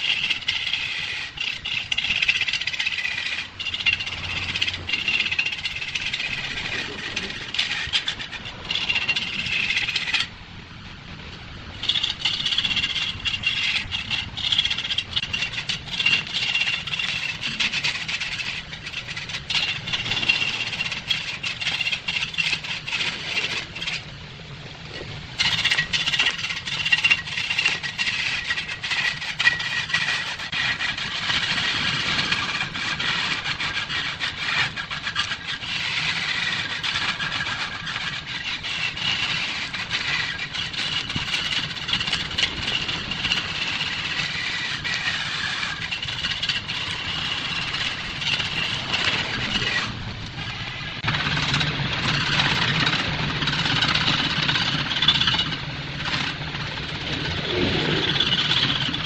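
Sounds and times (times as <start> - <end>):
wood lathe cutting: 0.0 - 10.3.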